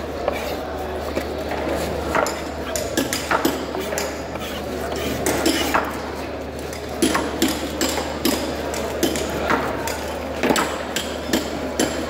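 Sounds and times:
knives chopping fish on boards: 0:02.0 - 0:04.3, 0:07.0 - 0:12.0.

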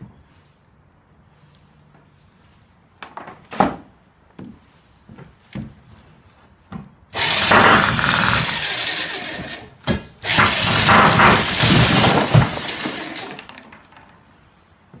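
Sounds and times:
electric jackhammer chiselling glass: 0:07.2 - 0:13.6.

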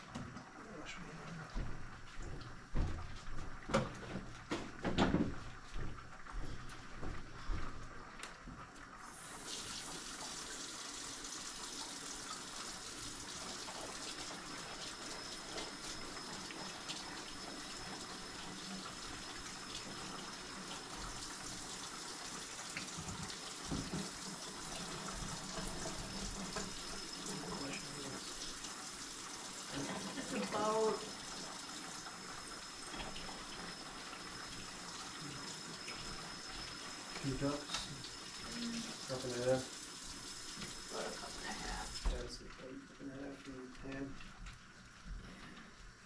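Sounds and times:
water running into sink: 0:00.0 - 0:46.0
kitchen clatter and knocks: 0:03.7 - 0:05.4.

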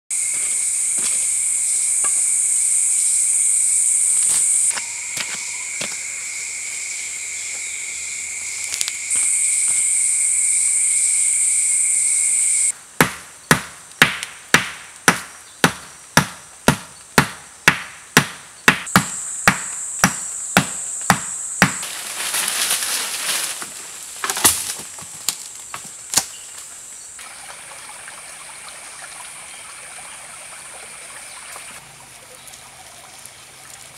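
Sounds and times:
insects buzzing: 0:00.1 - 0:31.9
axe chopping sapling: 0:13.0 - 0:22.0, 0:24.2 - 0:26.4
creek water running: 0:26.8 - 0:33.9.

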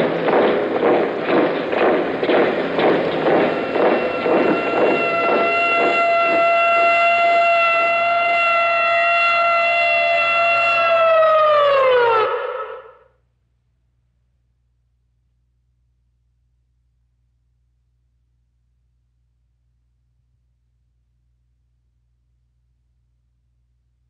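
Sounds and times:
pulsing thud: 0:00.0 - 0:06.8
siren steady tone: 0:00.0 - 0:13.1.

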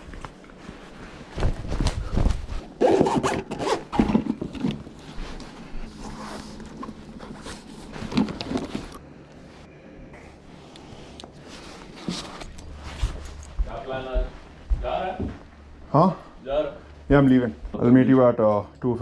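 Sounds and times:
rustling while packing: 0:00.0 - 0:15.1
bag zipper rasping: 0:02.8 - 0:04.2.

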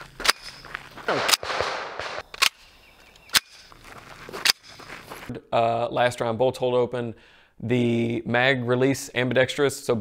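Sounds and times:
gunshots: 0:00.2 - 0:02.7.

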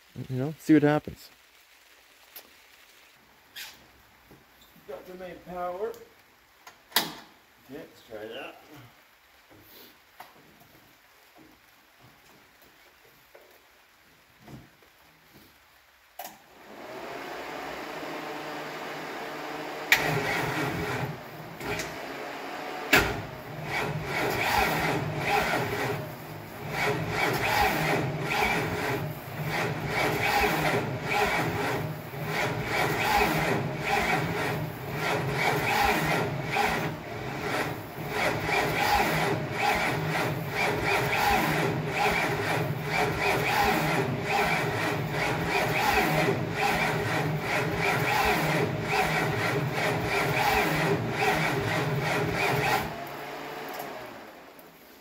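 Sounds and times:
starter motor cranking engine: 0:19.8 - 0:22.2, 0:22.9 - 0:53.1.

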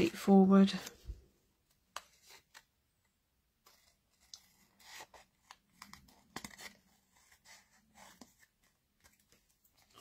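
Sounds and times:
paper rustling: 0:03.6 - 0:10.0.

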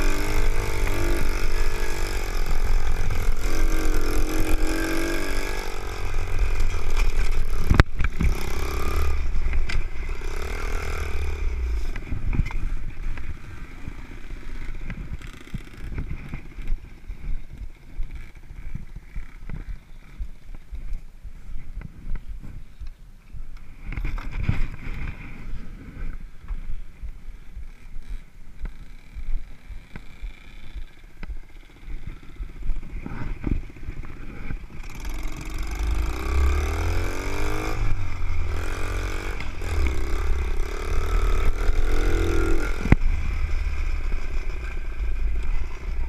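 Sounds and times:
small motorbike engine revving: 0:00.0 - 0:16.7, 0:27.7 - 0:46.0.

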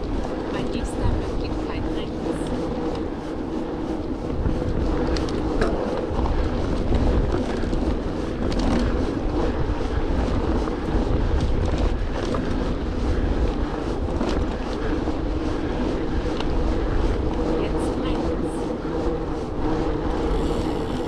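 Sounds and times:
bike tyres rumbling: 0:00.0 - 0:21.0
wind buffeting microphone: 0:00.0 - 0:21.0
bike clicks and rattles: 0:04.0 - 0:12.8, 0:13.5 - 0:15.4.

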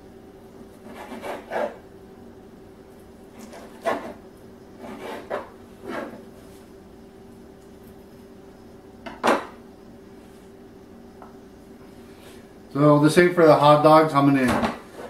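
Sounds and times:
knife cutting on wooden board: 0:00.8 - 0:01.8, 0:03.4 - 0:04.2, 0:04.8 - 0:06.2.

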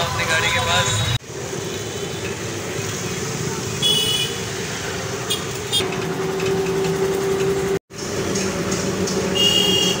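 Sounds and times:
road noise inside vehicle: 0:00.0 - 0:10.0
vehicle engine running: 0:05.6 - 0:09.8.

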